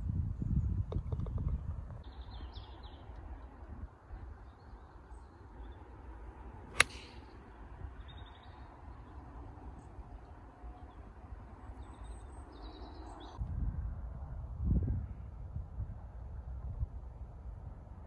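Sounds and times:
birds chirping: 2.0 - 13.4
golf club striking ball: 6.7 - 7.4.

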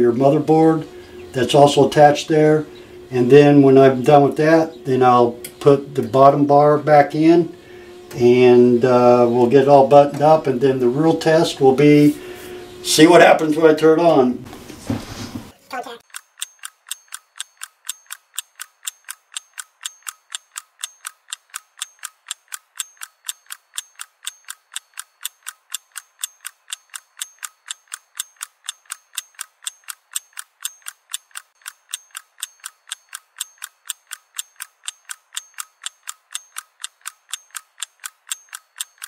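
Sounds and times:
clock ticking: 8.1 - 11.4, 15.8 - 39.0.

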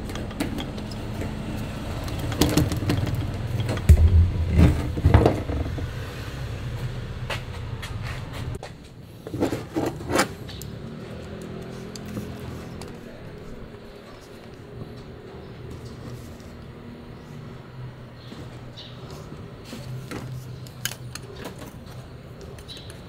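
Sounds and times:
low steady hum: 3.8 - 6.1.

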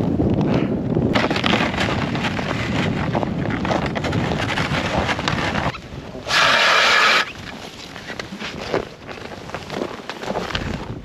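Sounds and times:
wind buffeting microphone: 0.0 - 11.0
sled dragging over snow: 1.2 - 11.0
loud hiss: 6.3 - 7.3
footsteps crunching on snow: 6.7 - 11.0.

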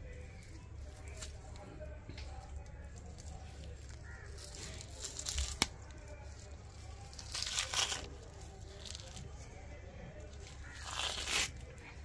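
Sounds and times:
wet ripping of fish skin: 3.2 - 6.0, 6.8 - 9.2, 10.5 - 11.7.

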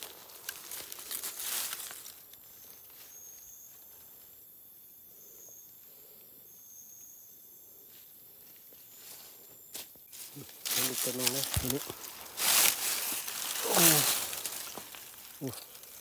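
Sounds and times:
dry leaves crackling and rustling: 0.0 - 3.1, 10.1 - 16.0
insect trilling: 0.0 - 16.0.

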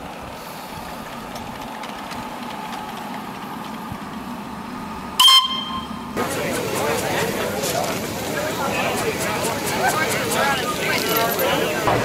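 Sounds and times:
steam locomotive running: 0.0 - 12.0
steam whistle toot: 5.2 - 6.1.

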